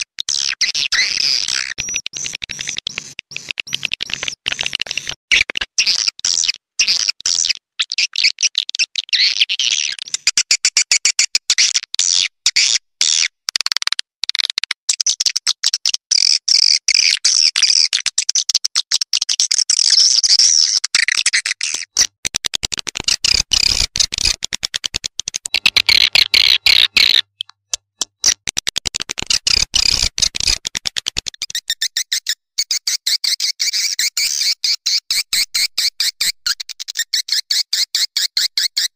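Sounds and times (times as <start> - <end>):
swiftlets twittering and chirping: 25.3 - 27.5, 29.2 - 30.6.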